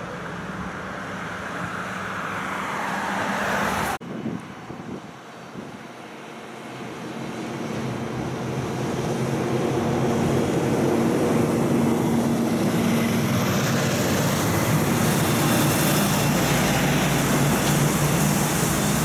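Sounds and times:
diesel truck engine passing: 7.0s - 19.0s.

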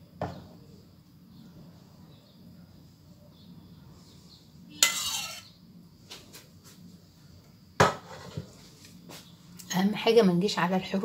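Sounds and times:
utensil scrape: 4.0s - 5.6s
utensil clinking on cookware: 4.8s - 5.5s.

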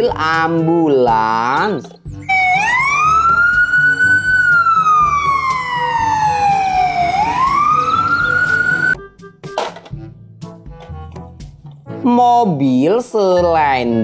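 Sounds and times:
ambulance siren wailing: 2.2s - 9.0s.

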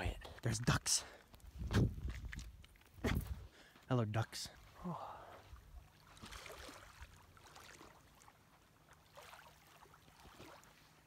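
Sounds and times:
small waves lapping on rocks: 5.9s - 11.0s.

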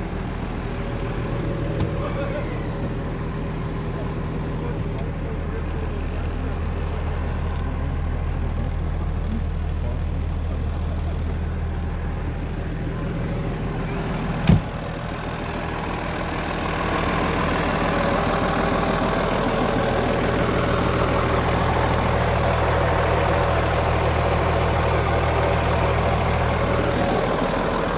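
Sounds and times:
diesel truck engine idling: 0.0s - 27.9s
sharp thump: 14.4s - 14.8s.

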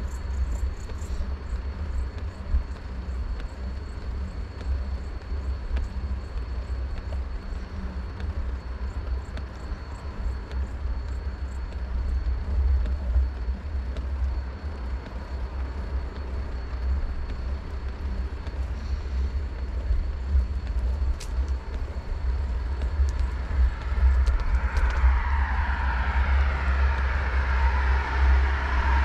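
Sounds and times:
wind rumble on microphone: 0.0s - 29.0s
motor vehicle approaching: 22.4s - 29.0s.

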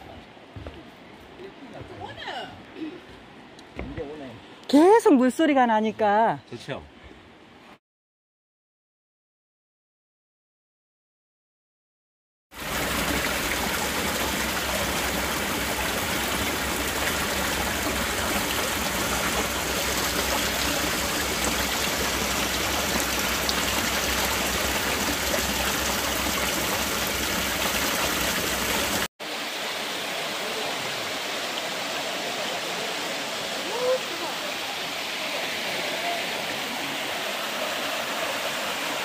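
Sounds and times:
stream rushing over rocks: 12.6s - 39.0s.

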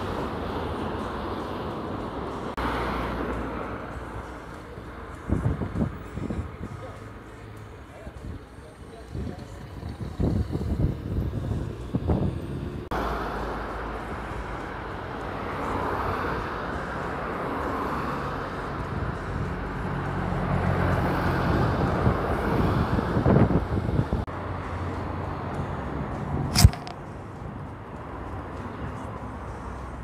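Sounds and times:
cars passing: 0.0s - 30.0s
wind rumbling on microphone: 5.2s - 6.8s, 9.1s - 12.9s, 21.4s - 24.3s.

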